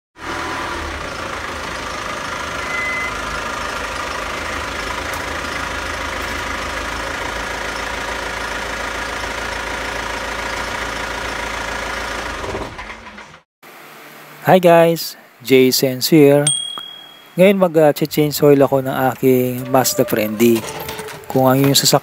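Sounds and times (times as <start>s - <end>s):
diesel engine idling: 0.2s - 14.4s, 17.4s - 22.0s.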